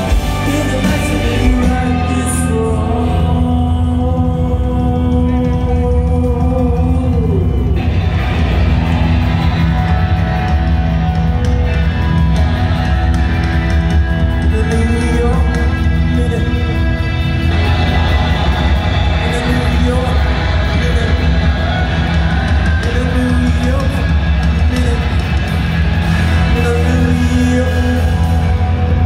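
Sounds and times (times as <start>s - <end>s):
person singing: 0.0s - 7.8s, 14.4s - 25.5s, 26.2s - 29.0s
bass guitar: 0.0s - 29.0s
distorted electric guitars: 0.0s - 29.0s
drums: 0.0s - 29.0s.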